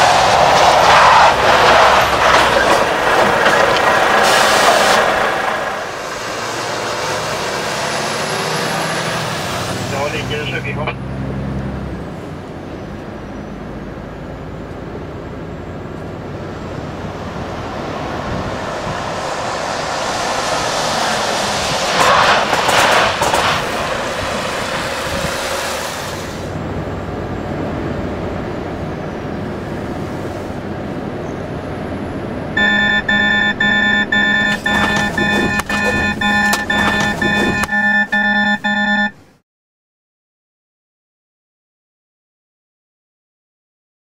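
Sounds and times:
vehicle engines passing: 0.0 - 39.2
tyres hissing on wet road: 3.8 - 10.3, 17.6 - 26.6, 29.6 - 30.6.

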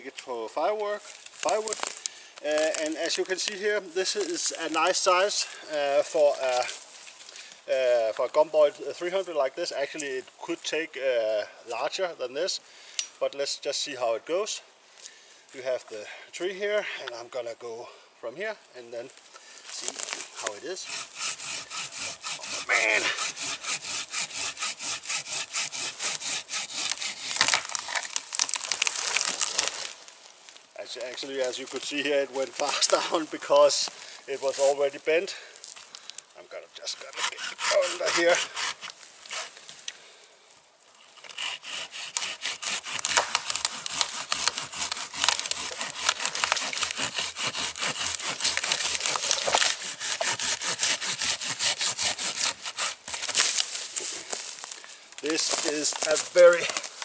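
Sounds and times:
wood cracking and splintering: 1.0 - 5.0, 19.8 - 33.3, 41.7 - 57.0
saw cutting through wood: 20.4 - 27.9, 36.8 - 39.6, 41.2 - 53.4.

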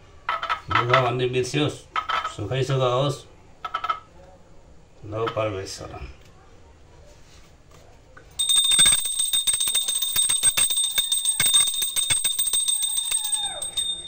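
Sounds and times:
hand bell ringing rapidly: 8.4 - 14.0.

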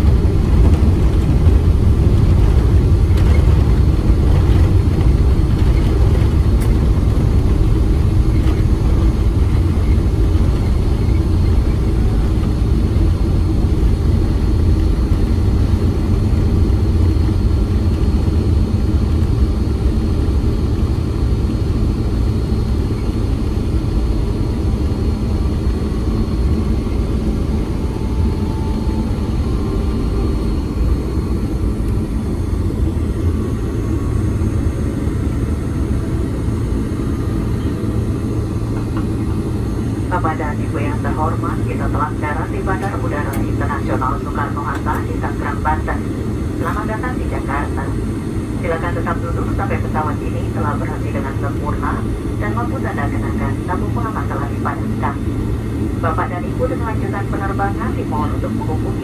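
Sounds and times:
jet engines and wheels rumbling: 0.0 - 59.0.

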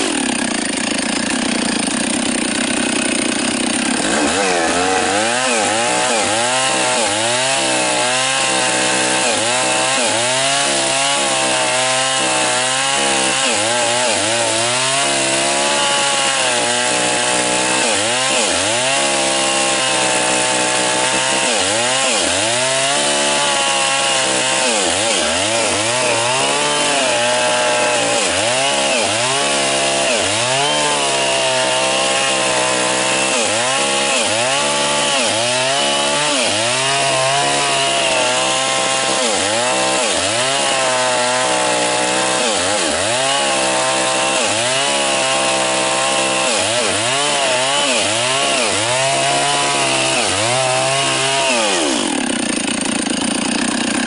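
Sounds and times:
chainsaw cutting tree trunk: 0.0 - 54.0.

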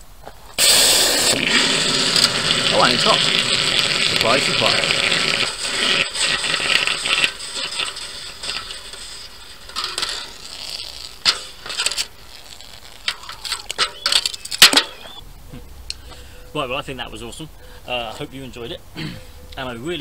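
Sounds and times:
hot metal sizzling in water: 0.6 - 15.2
metal clinks and scrapes: 7.8 - 14.9.

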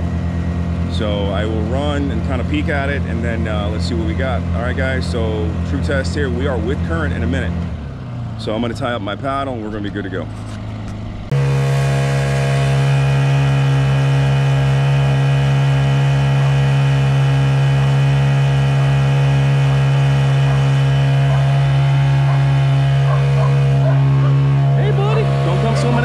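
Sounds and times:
outboard motor droning: 0.0 - 26.0.

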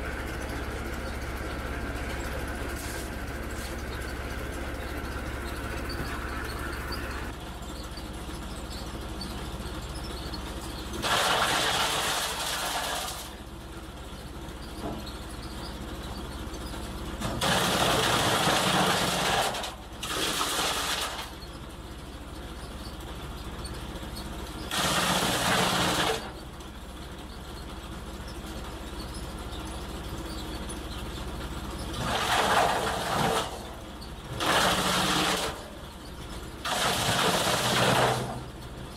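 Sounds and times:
forage chopper humming: 0.0 - 13.4.

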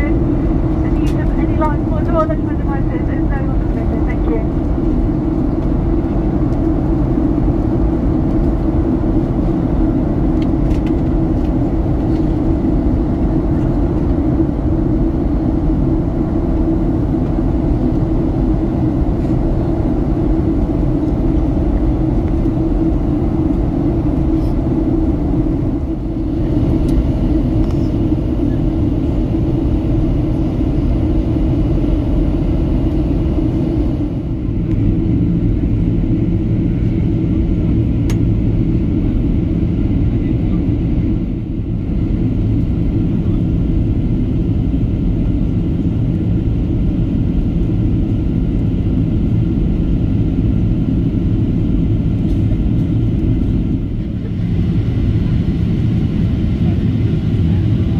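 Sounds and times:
jet engines rumbling: 0.0 - 57.9
airflow: 11.6 - 43.8.

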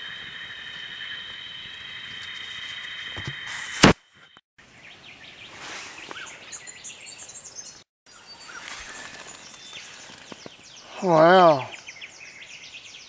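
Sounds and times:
night insects trilling: 0.0 - 3.6
birds chirping and calling: 4.8 - 13.0.

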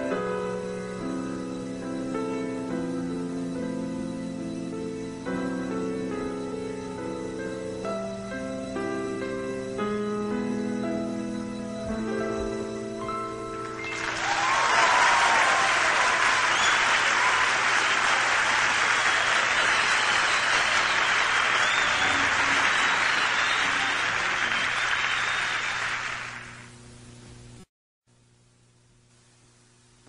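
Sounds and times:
audience applauding: 13.6 - 26.7.

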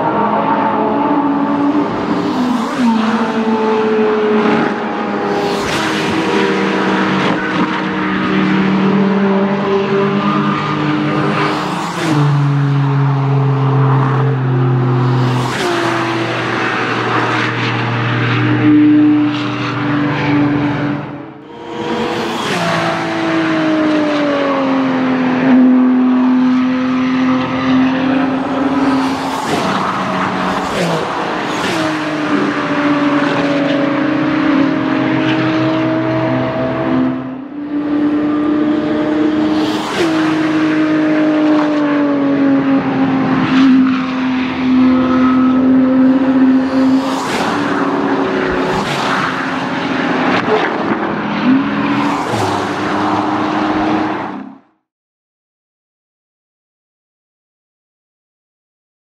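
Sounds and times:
race cars passing at full throttle: 0.0 - 54.9.

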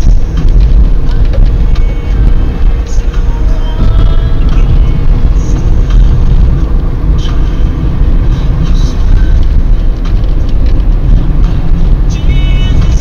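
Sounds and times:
road and engine rumble: 0.0 - 13.0.

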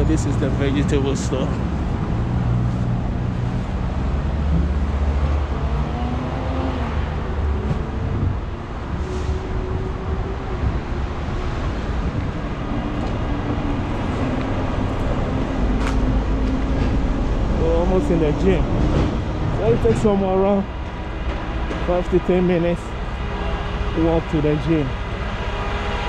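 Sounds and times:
traffic engines rumbling: 0.0 - 26.0.

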